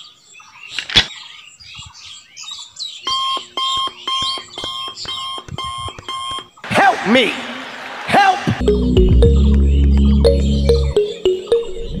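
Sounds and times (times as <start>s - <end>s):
faint bird chirps: 0.0s - 6.6s
electronic alarm beeping: 3.0s - 6.6s.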